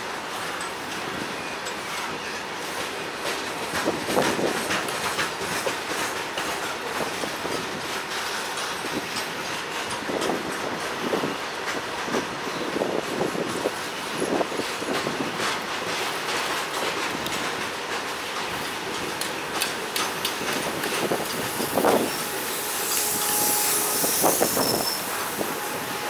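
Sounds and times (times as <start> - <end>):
train rushing on rails: 0.0 - 26.0
train wheel clicks: 0.4 - 25.7.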